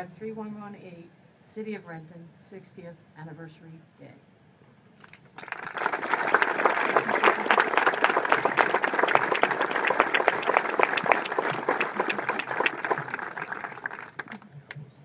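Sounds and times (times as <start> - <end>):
audience applauding: 5.4 - 14.8.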